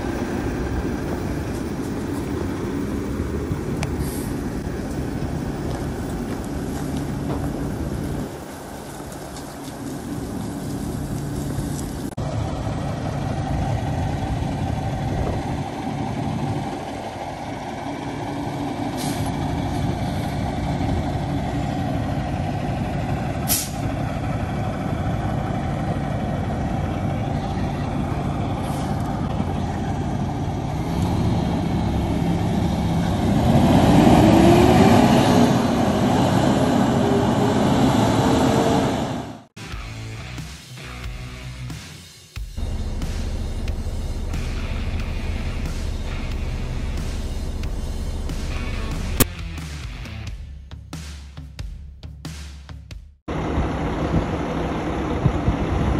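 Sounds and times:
diesel truck engine: 0.0 - 41.8, 42.6 - 50.4, 53.2 - 55.9
sharp hissing: 3.9 - 4.6.

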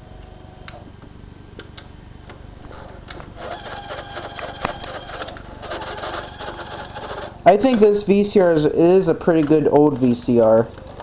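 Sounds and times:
mechanical rattle and whir: 2.6 - 7.8
tape mechanism clicks: 3.0 - 8.0.

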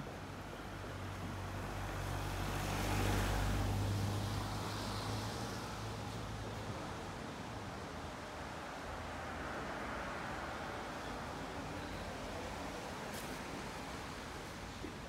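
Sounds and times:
car passing by: 1.2 - 7.6.

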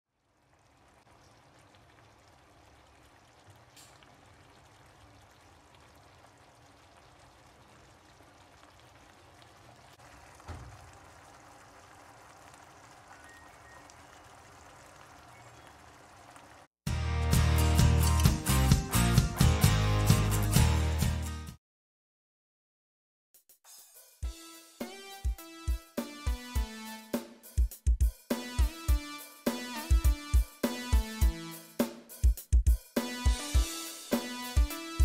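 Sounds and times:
gravy crackling in frying pan: 0.1 - 16.7.

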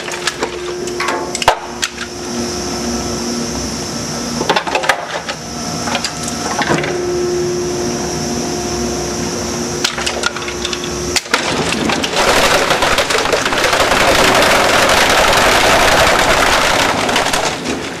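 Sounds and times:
steady machine tone: 0.0 - 4.5, 5.3 - 11.3
plastic cracking in shredder: 9.8 - 18.0
rattle of rapid small cracks: 9.8 - 18.0.

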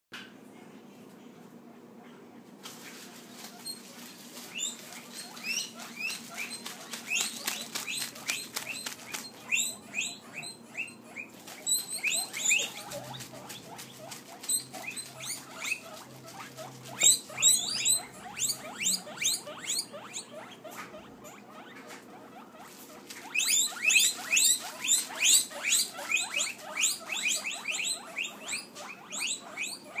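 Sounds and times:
guinea pigs squealing: 2.0 - 30.0.

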